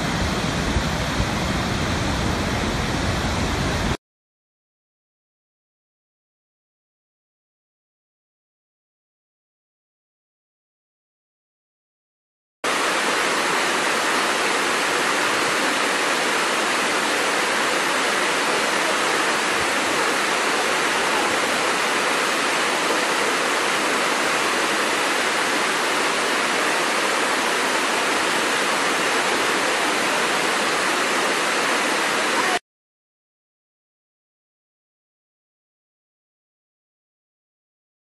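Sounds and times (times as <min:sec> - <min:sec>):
waterfall rushing: 0:00.0 - 0:04.0, 0:12.7 - 0:32.6.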